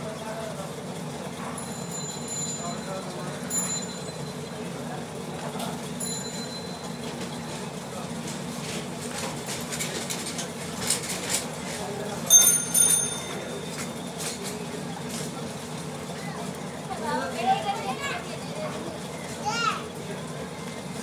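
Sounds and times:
high metallic ring: 12.3 - 14.2.

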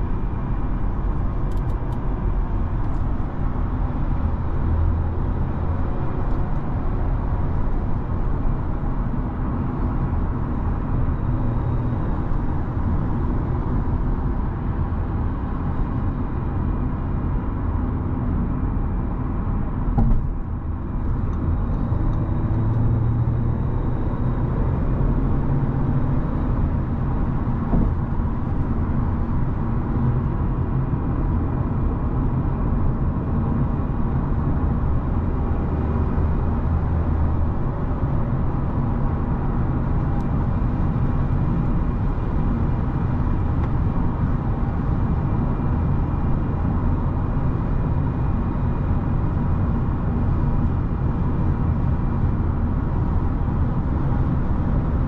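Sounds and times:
low engine hum: 0.0 - 55.0
brief knock: 20.0 - 20.3.

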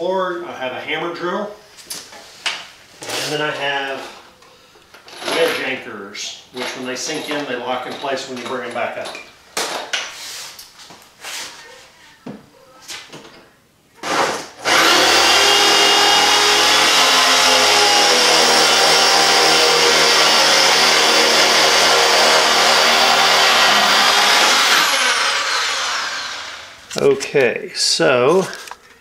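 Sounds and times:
hammer drill boring into concrete: 14.0 - 26.8.

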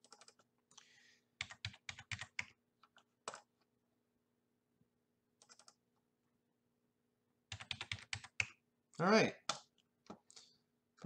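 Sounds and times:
faint keyboard typing: 0.0 - 3.7, 5.4 - 5.8, 7.5 - 8.6.

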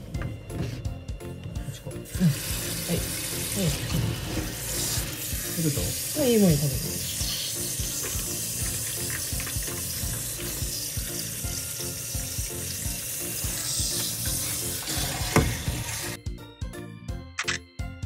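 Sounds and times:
shower spray hissing: 2.1 - 16.2.

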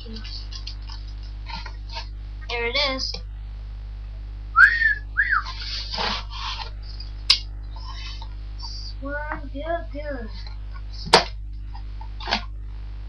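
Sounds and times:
person whistling: 4.6 - 5.5.

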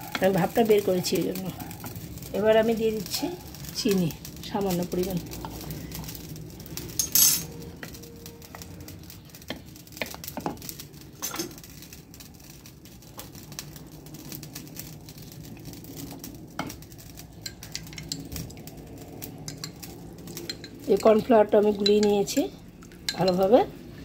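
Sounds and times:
wooden spoon stirring soup: 0.0 - 3.8, 4.8 - 13.6
spoon knocking and clinking on pot: 23.1 - 23.4.

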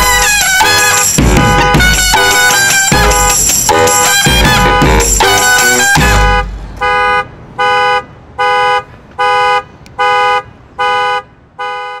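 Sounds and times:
brass and drum band: 0.0 - 6.6
car horn honking: 0.0 - 12.0.

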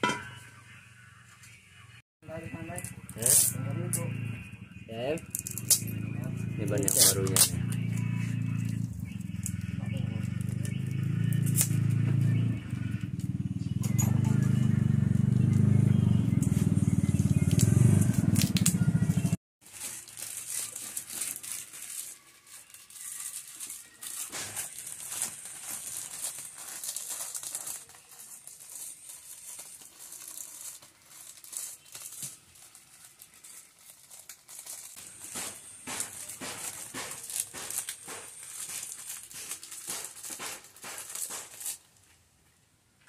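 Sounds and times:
plastic wrapping tearing: 6.6 - 9.7, 17.3 - 18.7, 19.6 - 42.1
plastic wrapping crinkling: 19.6 - 42.2.

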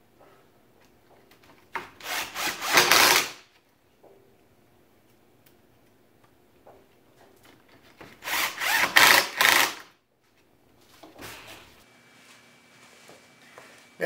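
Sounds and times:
impact driver driving screw: 2.0 - 3.4, 8.2 - 9.9.

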